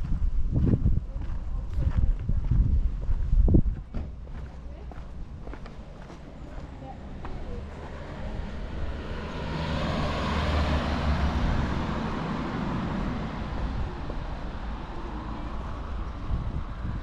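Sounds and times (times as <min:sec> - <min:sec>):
car driving past: 0:07.0 - 0:17.0.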